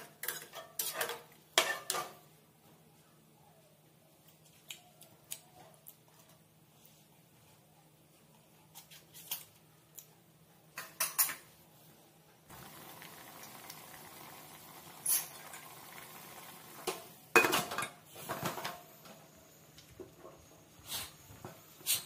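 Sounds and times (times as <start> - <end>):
steady hiss: 12.5 - 17.3
food bubbling at a boil: 12.5 - 17.4.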